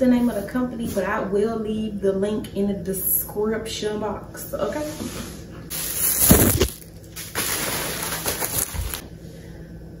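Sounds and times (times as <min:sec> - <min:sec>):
box thumping down: 0:06.2 - 0:06.8.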